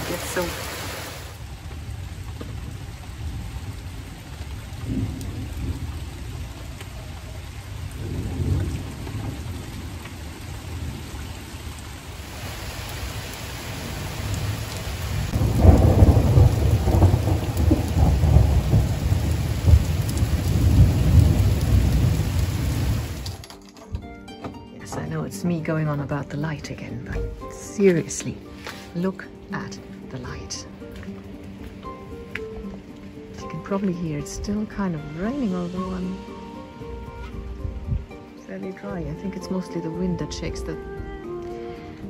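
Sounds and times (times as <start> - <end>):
thunder rumbling: 0.0 - 23.4
rain falling: 0.0 - 23.8, 24.9 - 42.0.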